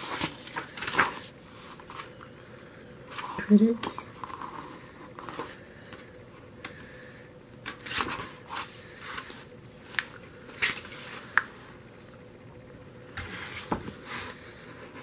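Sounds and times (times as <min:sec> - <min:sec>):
book pages turning: 0:00.0 - 0:02.2, 0:03.1 - 0:06.8, 0:07.6 - 0:11.5.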